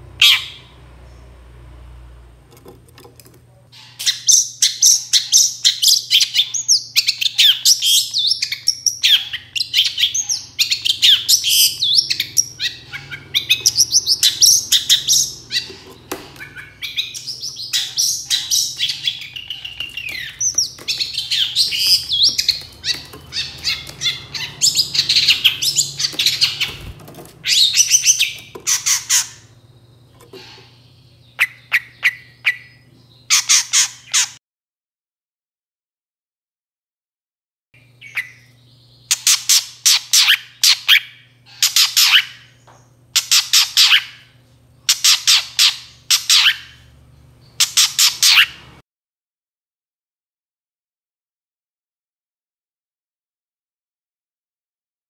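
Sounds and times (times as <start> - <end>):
bird fast chattering song: 3.7 - 34.4, 37.9 - 42.6, 43.2 - 48.8.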